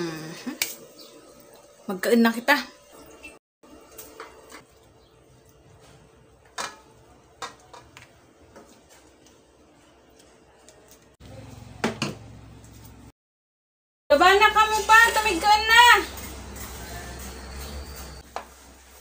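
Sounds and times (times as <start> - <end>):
utensil scraping metal wok: 14.5 - 19.0.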